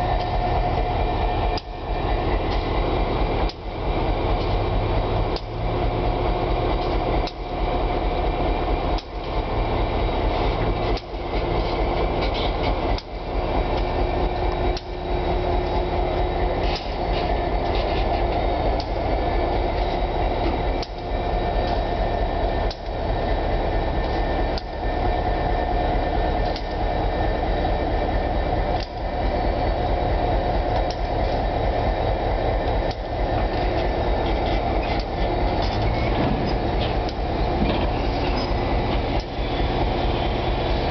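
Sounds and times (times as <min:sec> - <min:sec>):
diesel locomotive rumble: 0:00.0 - 0:40.9
freight cars rolling and knocking: 0:32.6 - 0:40.9.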